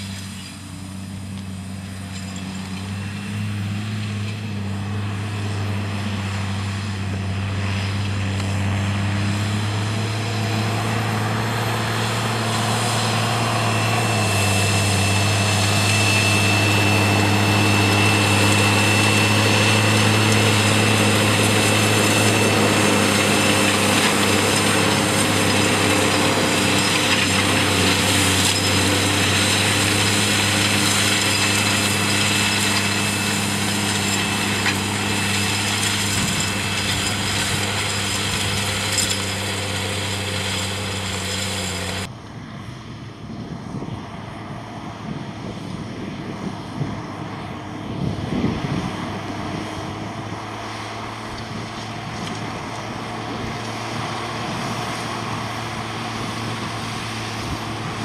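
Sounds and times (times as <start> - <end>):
seed drill rumbling and clattering: 0.0 - 42.1, 49.4 - 58.0
tractor diesel engine running: 0.0 - 58.0
thin high whine: 12.0 - 42.1.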